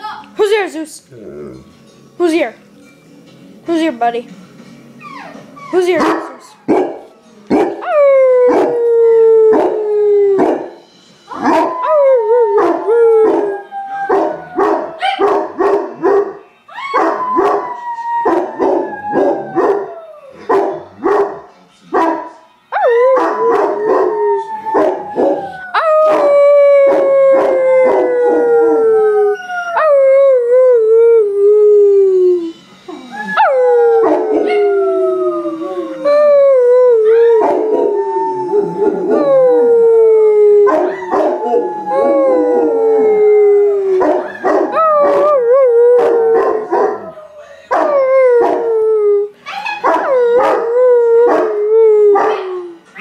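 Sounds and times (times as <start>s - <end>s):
dog howling: 7.8s - 10.6s, 11.4s - 16.1s, 16.7s - 21.3s, 22.8s - 52.8s.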